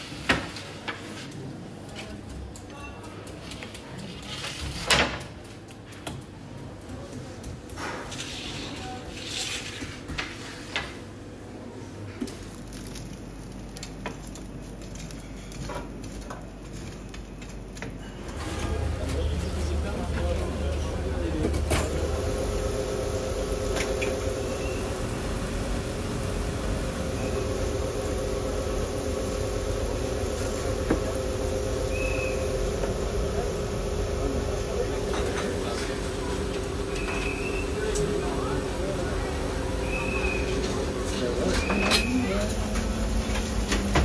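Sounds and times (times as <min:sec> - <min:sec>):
steady machine hum: 0:17.2 - 0:44.0
food sizzling: 0:21.8 - 0:41.6.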